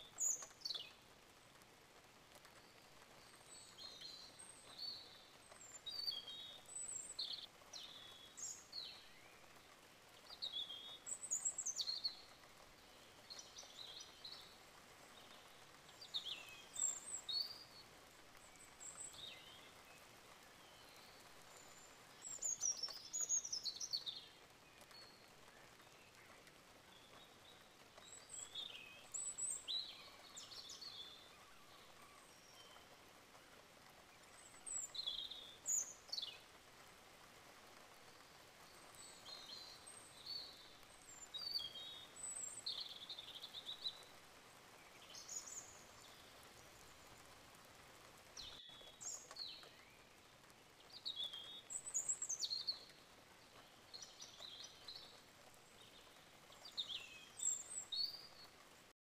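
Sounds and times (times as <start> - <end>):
faint steady hiss: 0.0 - 59.0.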